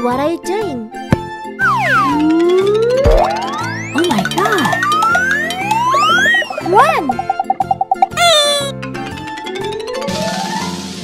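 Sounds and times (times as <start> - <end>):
children's background music: 0.0 - 10.9.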